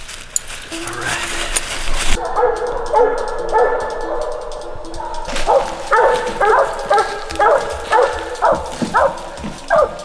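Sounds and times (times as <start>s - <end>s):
dog barking: 2.2s - 10.0s.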